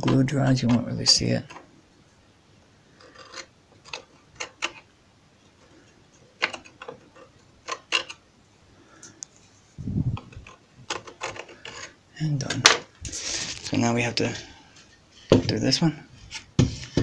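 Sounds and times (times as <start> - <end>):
knife scraping wood: 2.9 - 4.8, 10.4 - 12.0.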